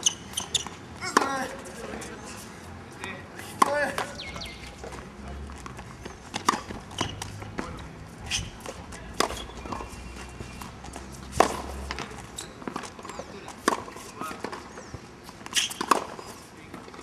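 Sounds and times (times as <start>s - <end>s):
tennis racket hitting ball: 5.7s - 7.7s, 8.3s - 13.0s, 15.5s - 16.2s.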